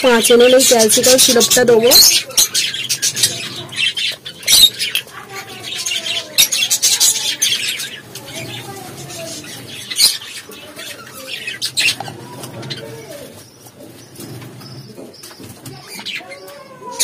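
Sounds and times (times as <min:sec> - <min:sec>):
birds cooing and calling: 0:00.0 - 0:17.0.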